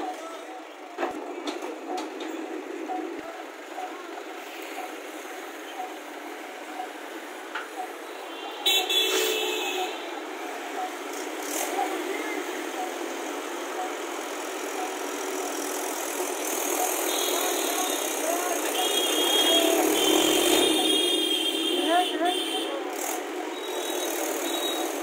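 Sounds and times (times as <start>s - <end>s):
vehicle horn honking: 8.3s - 10.1s, 18.6s - 22.8s.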